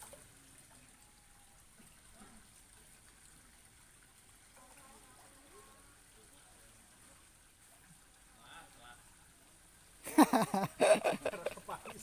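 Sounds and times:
faint distant voices: 0:00.0 - 0:09.9.

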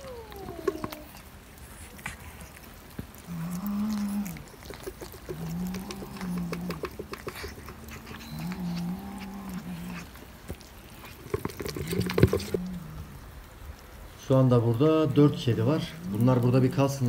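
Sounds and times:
low moaning animal calls: 0:00.0 - 0:01.4, 0:03.2 - 0:10.4, 0:11.0 - 0:13.5.

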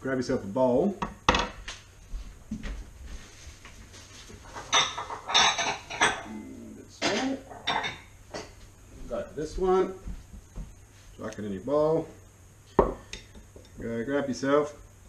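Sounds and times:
dishes clattering: 0:04.4 - 0:06.3, 0:07.0 - 0:08.6.

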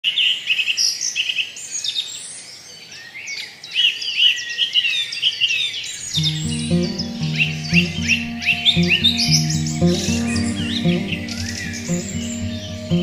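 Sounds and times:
music: 0:06.2 - 0:13.0.

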